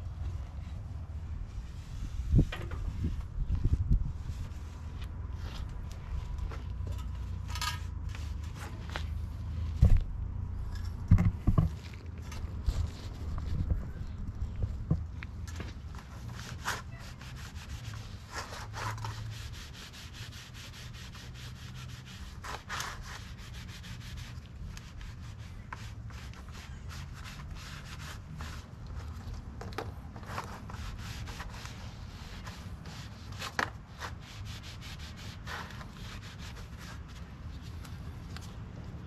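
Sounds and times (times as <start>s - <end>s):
rag rubbing and scraping: 10.6s - 37.8s.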